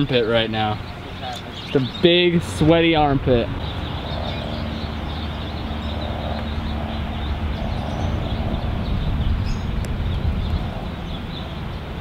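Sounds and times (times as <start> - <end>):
faint steady hum: 0.0 - 12.0
low rumble: 2.6 - 12.0.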